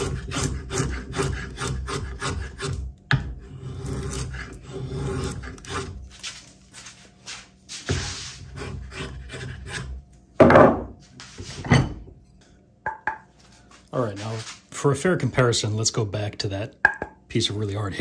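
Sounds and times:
drawknife scraping wood: 0.0 - 6.1, 7.8 - 10.0.

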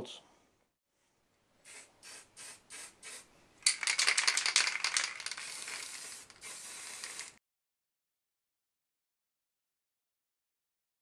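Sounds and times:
spray can hissing: 1.6 - 7.4
aerosol can ball rattling: 1.7 - 7.4.

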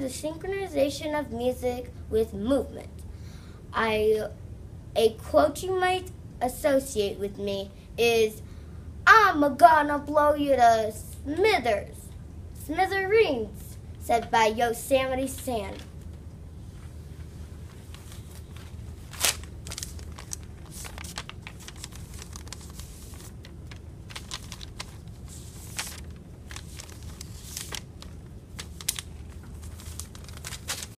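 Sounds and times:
low steady room hum: 0.0 - 31.0
paper rustling and crinkling: 16.7 - 31.0.

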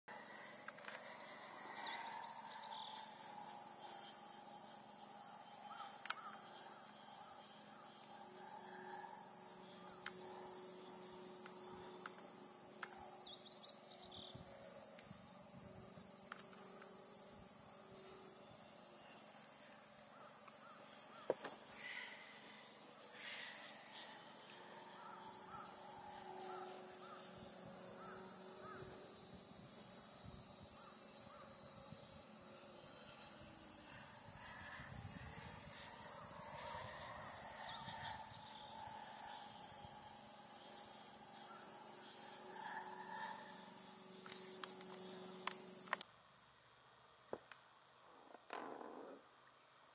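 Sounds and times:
high-pitched insect chorus: 0.1 - 49.9
faint bird calls: 5.6 - 7.5, 20.1 - 29.0.

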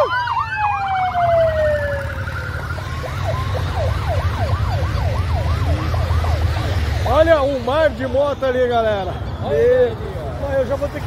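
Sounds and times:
siren sliding down in pitch: 0.0 - 7.0
yelping siren: 0.0 - 7.5.

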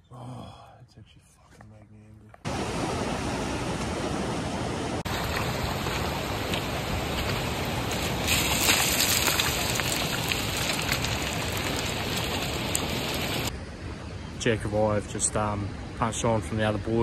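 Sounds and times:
steady rushing hiss: 2.5 - 13.6
footsteps crunching on loose stones: 5.1 - 13.4.

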